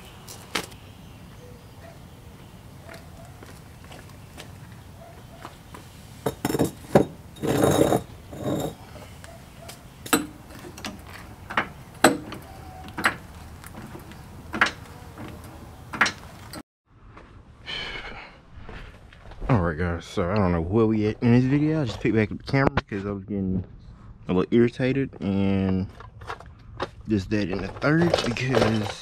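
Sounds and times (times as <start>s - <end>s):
metallic knocks and clinks: 6.2s - 8.8s, 10.0s - 16.6s.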